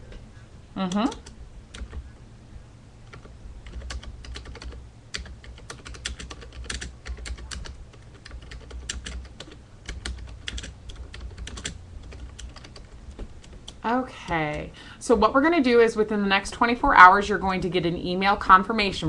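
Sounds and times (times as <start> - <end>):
computer keyboard key clicks: 0.9 - 2.0, 3.1 - 13.8.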